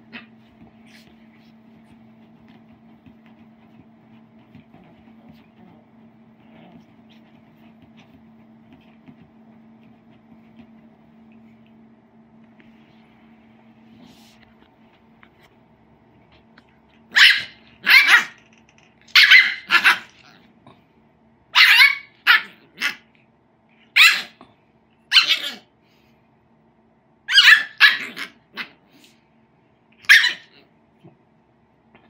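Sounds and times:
puppy yipping and barking: 17.1s - 18.4s, 19.1s - 20.2s, 21.6s - 23.0s, 24.0s - 24.4s, 25.1s - 25.7s, 27.3s - 28.7s, 30.0s - 30.6s.

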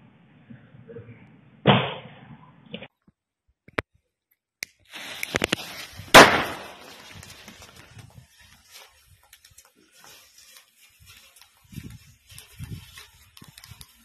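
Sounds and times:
firecrackers cracking: 4.8s - 9.6s
loud firecracker blast: 5.3s - 7.2s
loud bang: 6.1s - 6.8s.

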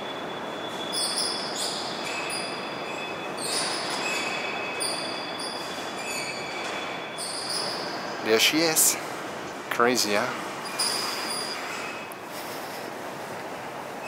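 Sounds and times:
high squeaks and whistles: 0.0s - 8.2s, 10.6s - 12.1s.

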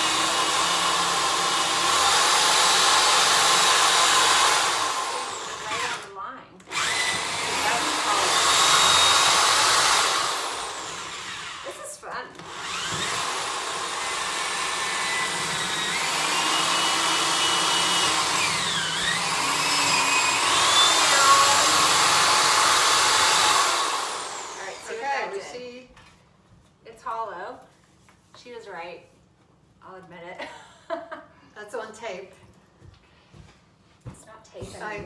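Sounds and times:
cordless drill boring into wood: 0.0s - 6.1s, 6.7s - 25.3s.

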